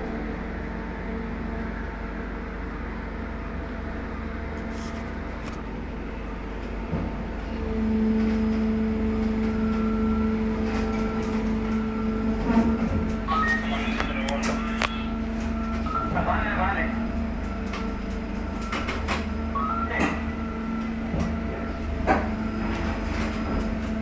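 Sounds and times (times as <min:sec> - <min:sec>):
crane drives humming: 0:00.0 - 0:24.0
crane machinery hum: 0:00.0 - 0:24.0.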